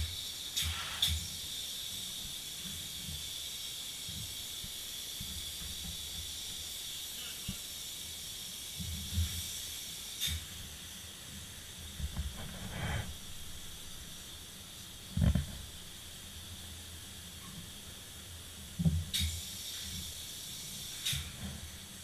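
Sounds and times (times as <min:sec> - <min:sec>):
spray foam gun hissing: 0:00.0 - 0:15.0.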